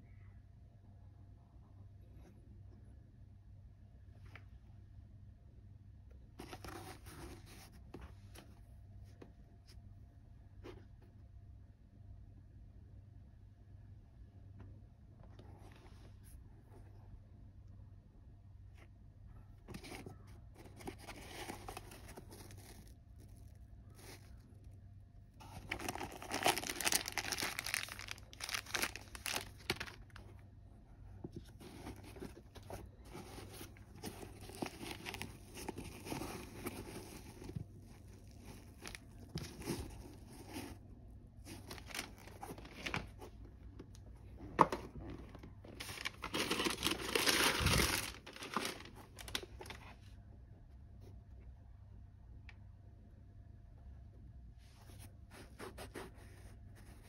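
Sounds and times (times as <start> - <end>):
tissue paper crinkling: 19.8 - 24.7, 25.3 - 30.4, 31.4 - 40.8, 41.4 - 43.5, 45.1 - 49.9.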